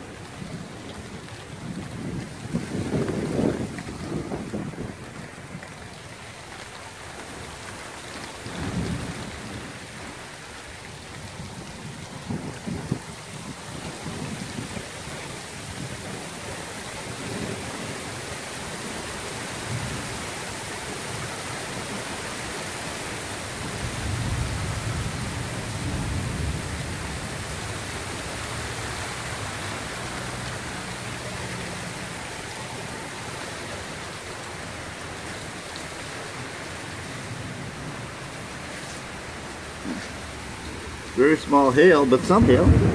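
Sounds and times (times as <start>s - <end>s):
heavy rain and hail: 0.0s - 42.9s
thunder rumble: 0.3s - 5.9s, 23.6s - 29.9s, 37.2s - 42.9s.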